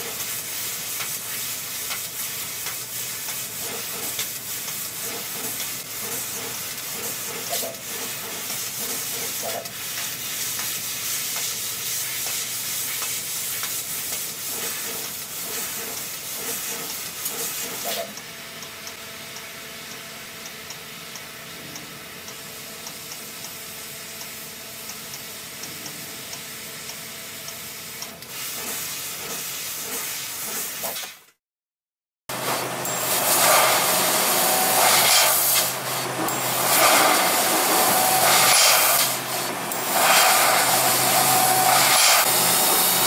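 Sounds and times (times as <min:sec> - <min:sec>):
laser cutter hissing sizzle: 0:00.0 - 0:18.2, 0:32.4 - 0:43.0.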